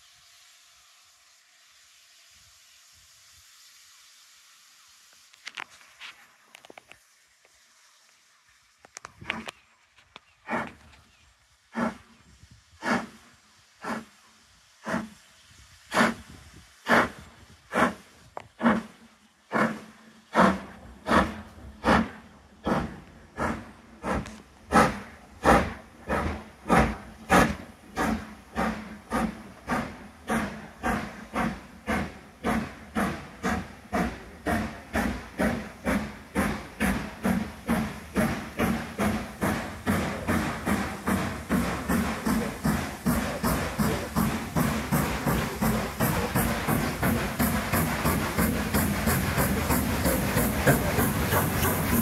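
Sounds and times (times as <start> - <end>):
steam locomotive exhaust beats: 10.2 - 52.0
low train rumble: 10.3 - 52.0.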